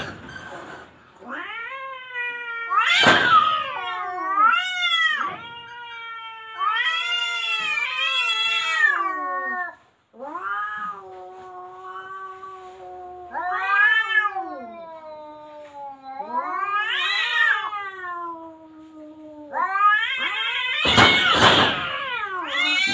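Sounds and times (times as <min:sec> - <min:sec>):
cats yowling: 0:01.2 - 0:22.9
cat hissing: 0:06.6 - 0:22.9.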